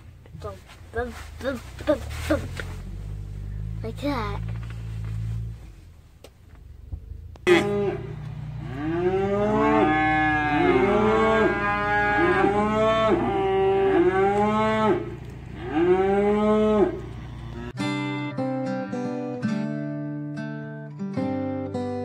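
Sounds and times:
calves bawling: 6.6s - 17.8s
strummed acoustic guitar music: 17.7s - 22.0s.

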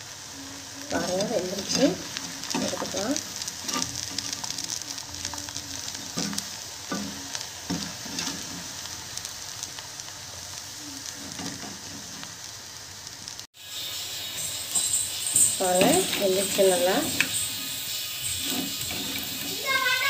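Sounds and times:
deep-frying crackling sizzle: 0.0s - 20.0s
metal ladle scraping a pot: 1.5s - 4.8s, 14.4s - 19.6s.

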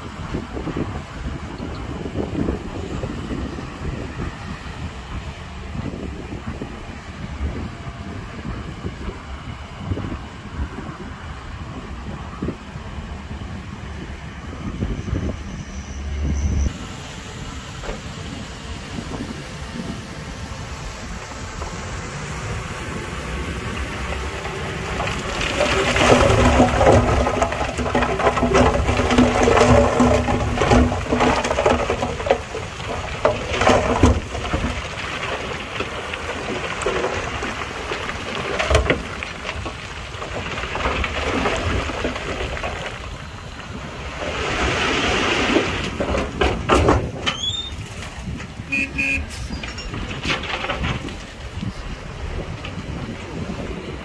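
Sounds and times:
diesel engine running: 0.0s - 54.0s
rock rattling and grinding: 22.4s - 54.0s.

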